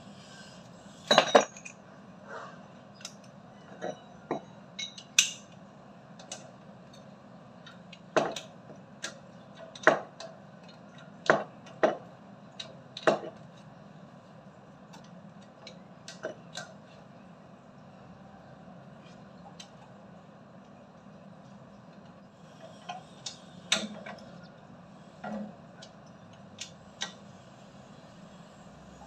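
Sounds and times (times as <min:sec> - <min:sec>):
wrench clinking on metal pipes: 0:01.1 - 0:01.8, 0:03.0 - 0:05.5.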